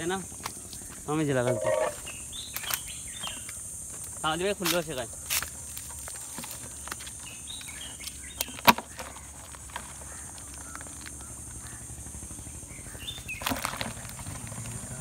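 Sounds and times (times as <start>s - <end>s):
high-pitched insect buzz: 0.0s - 8.4s
crabs and net landing in plastic tub: 8.4s - 10.0s, 13.4s - 14.4s.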